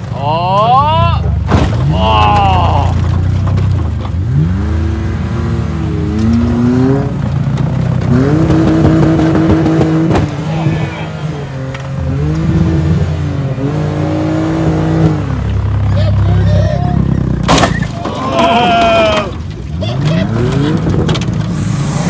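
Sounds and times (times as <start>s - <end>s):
car engines revving: 0.0s - 22.0s
car crashing into car: 1.4s - 4.2s, 17.4s - 19.8s.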